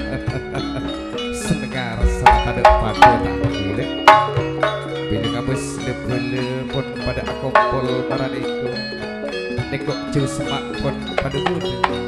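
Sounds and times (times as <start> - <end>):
hand drum: 0.0 - 12.0
metallophones and gongs ringing: 1.3 - 9.0
loud struck strokes: 2.0 - 5.0.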